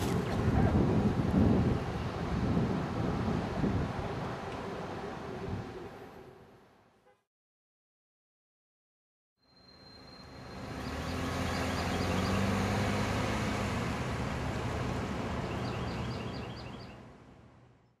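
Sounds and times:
cars passing by: 9.6s - 17.8s.

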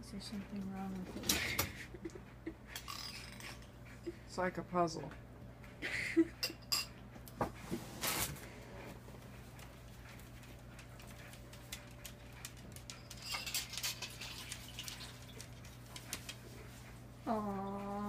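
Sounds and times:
steady low hum: 15.1s - 18.0s.

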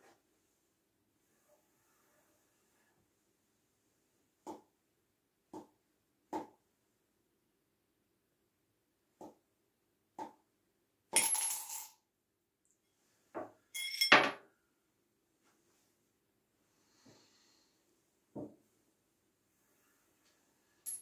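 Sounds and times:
coin rattling against glass: 11.2s - 12.0s.

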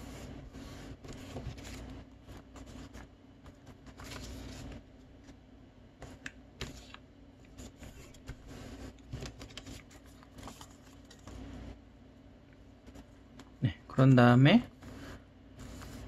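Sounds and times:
paper rustling and crinkling: 0.9s - 4.8s, 6.6s - 11.4s.

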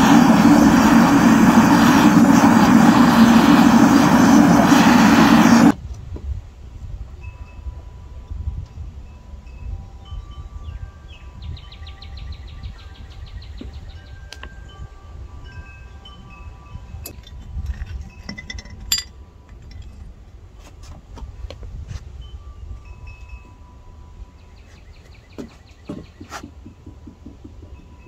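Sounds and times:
steady low rumble: 0.0s - 6.7s
chimes ringing: 14.0s - 17.2s, 22.2s - 24.5s.

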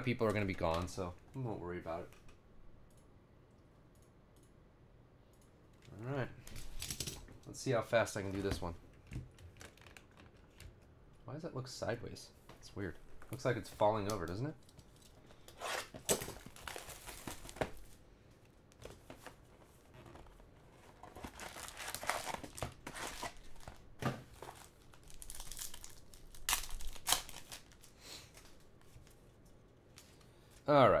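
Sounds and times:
card wrappers crinkling and tearing: 9.4s - 10.6s, 15.8s - 18.0s, 20.9s - 29.1s.

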